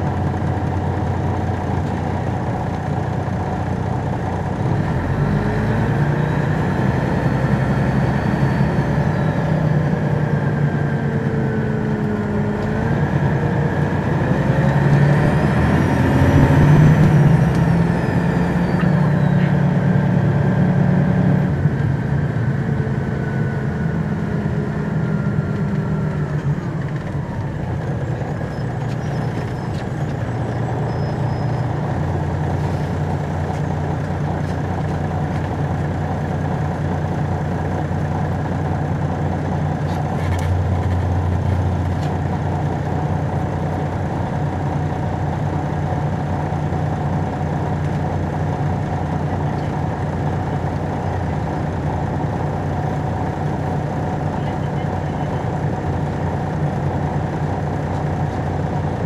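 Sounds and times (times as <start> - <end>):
diesel bus engine accelerating: 0.0 - 59.0
transmission whine: 4.8 - 20.8.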